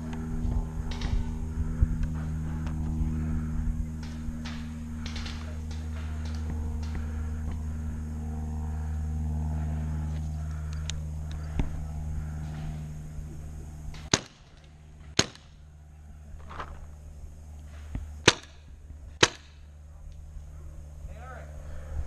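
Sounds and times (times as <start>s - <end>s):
low hum: 0.0s - 22.0s
paintball marker shots: 14.0s - 15.6s, 18.2s - 19.7s.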